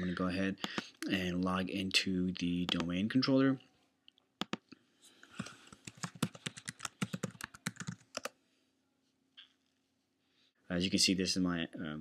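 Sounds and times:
keyboard typing: 0:00.6 - 0:01.0, 0:04.4 - 0:04.7, 0:05.3 - 0:08.3.

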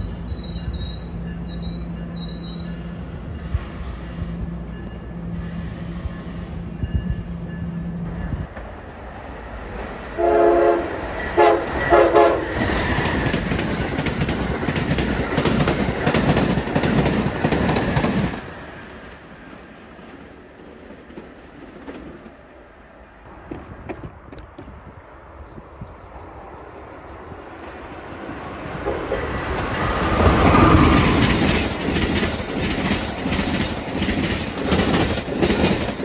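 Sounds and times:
train hum: 0:00.0 - 0:36.0
train rushing past: 0:00.0 - 0:36.0
train horn blasts: 0:10.2 - 0:12.6
wheels clicking over rail joints: 0:12.6 - 0:22.4, 0:23.3 - 0:24.9, 0:28.8 - 0:36.0.

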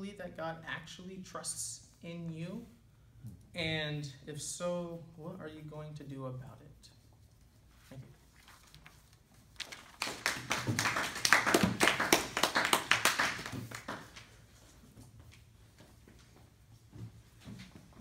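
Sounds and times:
small group clapping: 0:09.6 - 0:14.4.

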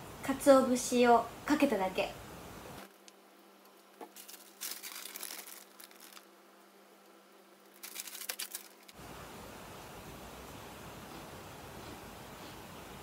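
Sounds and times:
plastic packet crinkling: 0:03.8 - 0:06.3, 0:07.6 - 0:09.0.

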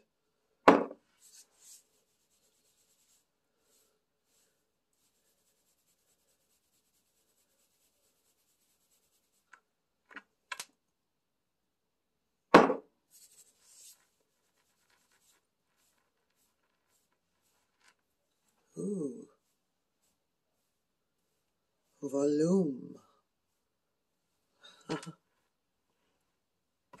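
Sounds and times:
fingers rustling hair: 0:01.1 - 0:09.6, 0:13.1 - 0:22.0
loud thump: 0:12.5 - 0:12.9.

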